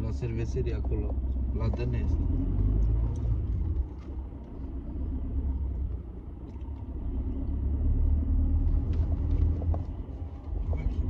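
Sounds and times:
car cabin road and engine rumble: 0.0 - 11.0.

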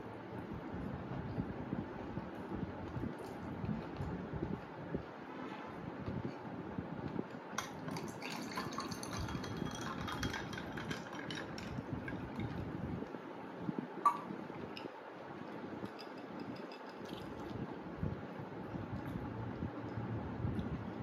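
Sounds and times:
juice pouring into glass of ice: 7.6 - 12.7.

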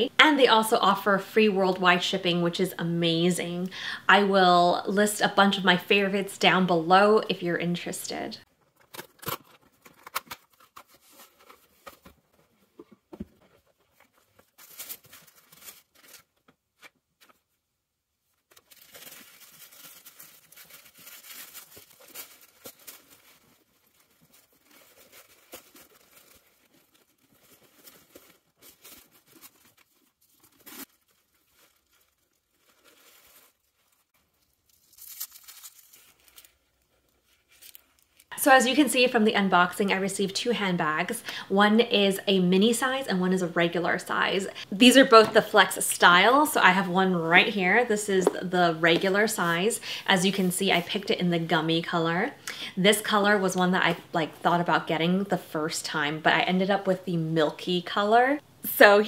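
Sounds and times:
tissue paper rustling and crinkling: 9.2 - 12.7, 13.4 - 17.6, 18.2 - 38.8
protective wrapping peeled off: 18.4 - 38.3.

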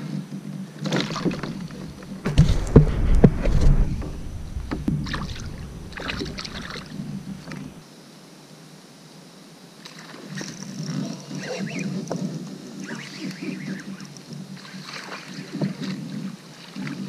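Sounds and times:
water splashing: 0.8 - 7.8.

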